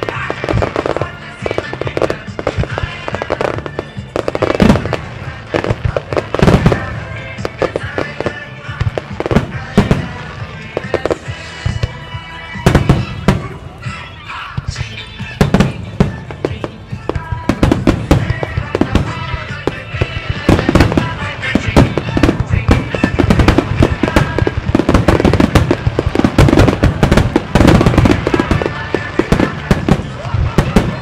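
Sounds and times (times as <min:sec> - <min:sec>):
fireworks shells bursting: 0:00.0 - 0:31.0.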